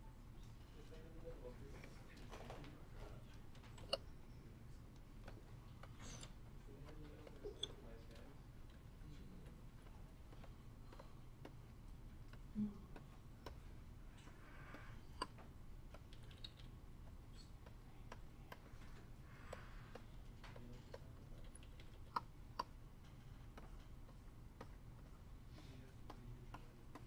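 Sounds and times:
keyboard clicks: 14.7s - 25.2s.

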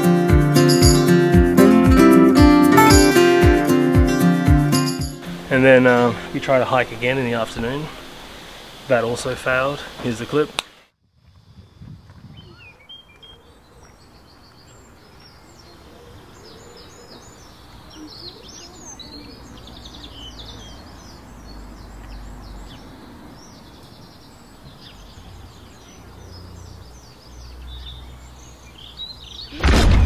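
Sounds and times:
small birds chirping: 0.0s - 1.3s, 11.4s - 29.6s
sudden loud burst: 29.5s - 30.0s.

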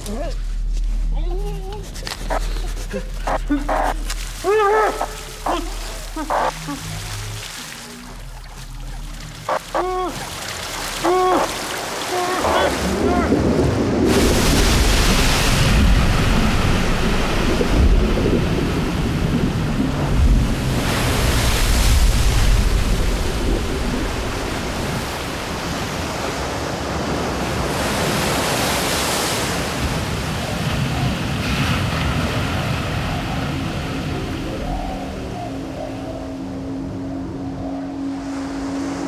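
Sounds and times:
heavy rushing water: 1.9s - 39.0s.

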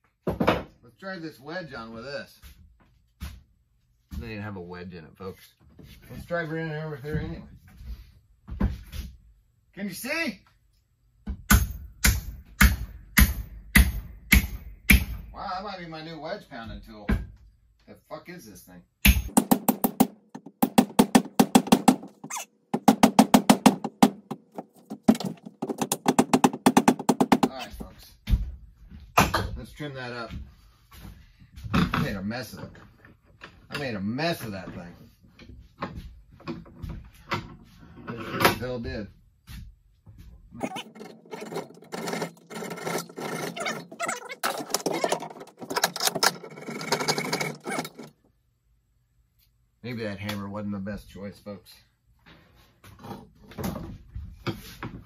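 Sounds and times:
hammer tapping wedge: 19.1s - 27.7s
hand saw cutting wood: 40.6s - 48.1s.

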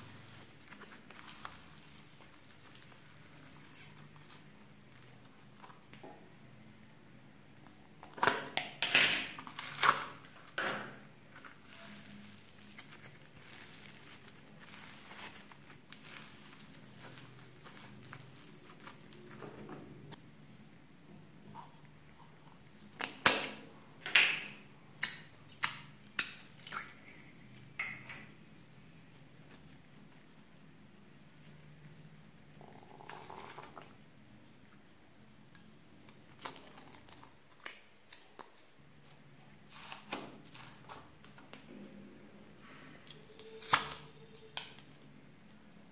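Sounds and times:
slime crackling and popping: 0.7s - 5.7s.

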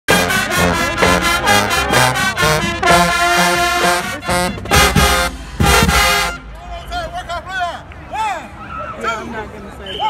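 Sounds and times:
brass horns: 0.1s - 6.6s
marching band playing: 0.1s - 7.2s
drum hits: 2.4s - 6.4s.

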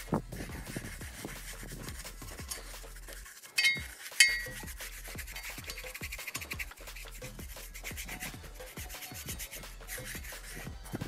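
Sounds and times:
paintbrush rubbing on metal: 0.0s - 11.0s
sharp metallic clinks: 3.6s - 4.6s.

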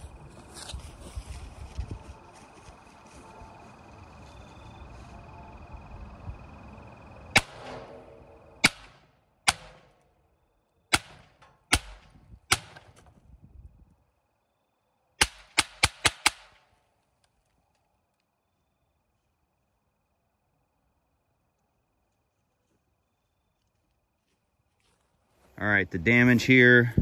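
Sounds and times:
rifle shots: 7.3s - 10.0s, 10.9s - 13.0s, 15.2s - 16.6s.

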